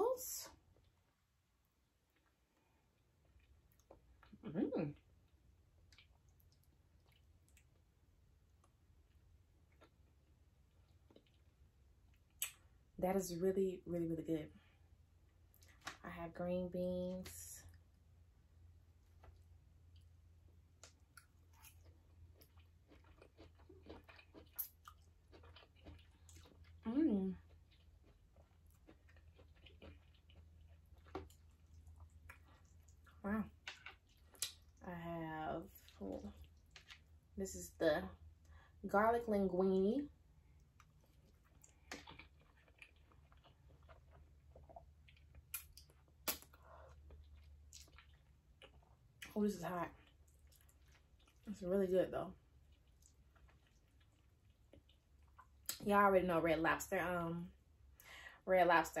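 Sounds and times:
chewing crunchy beans: 2.1s - 7.9s, 8.5s - 12.7s, 19.0s - 34.9s, 35.7s - 37.2s, 40.5s - 51.7s, 52.3s - 55.8s.

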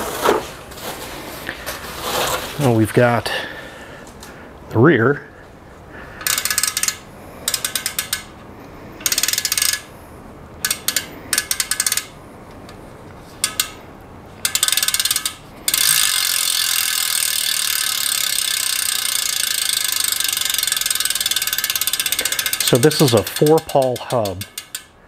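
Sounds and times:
bicycle freehub clicking: 6.2s - 10.0s, 10.6s - 25.0s.

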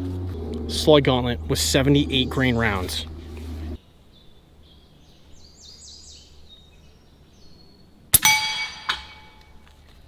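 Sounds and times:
small birds chirping: 0.0s - 8.1s
steel target ringing: 8.2s - 9.4s.

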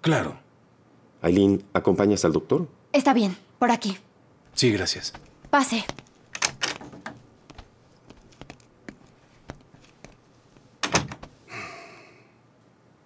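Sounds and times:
hard shoes on wooden floor: 4.5s - 11.5s
rustling thump: 4.5s - 11.5s.

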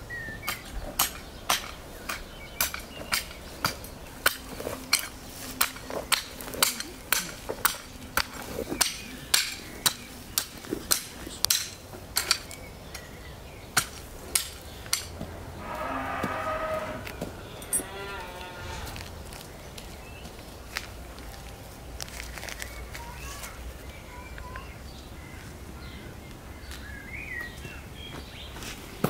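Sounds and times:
garden hoe chopping stony soil: 0.4s - 13.0s, 13.7s - 15.2s.

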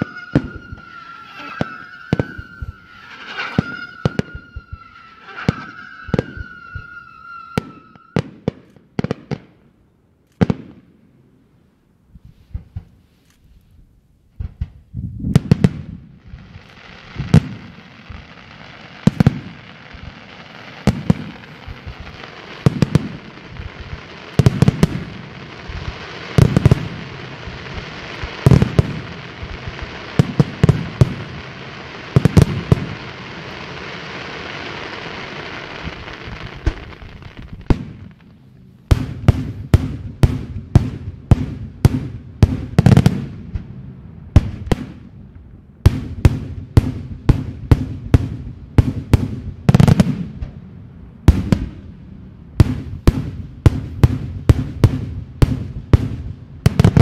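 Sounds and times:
fireworks bangs: 0.0s - 9.6s, 14.4s - 57.0s
steady hiss: 16.1s - 45.4s.

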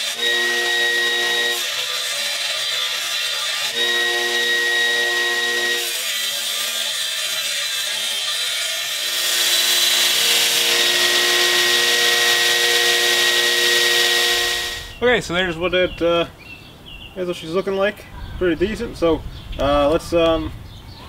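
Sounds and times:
steel grinding against belt: 0.0s - 14.9s
belt grinder motor whine: 0.0s - 15.0s.

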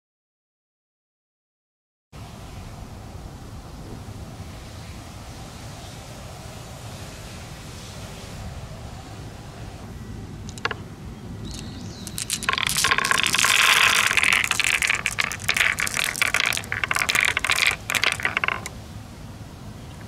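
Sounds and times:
glass marbles clattering: 10.5s - 10.8s, 11.5s - 18.7s.

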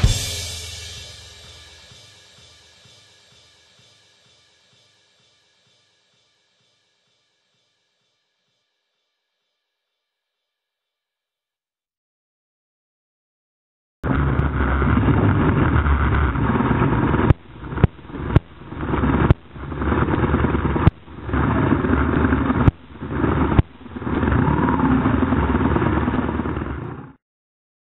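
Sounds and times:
wind noise: 14.0s - 27.1s.

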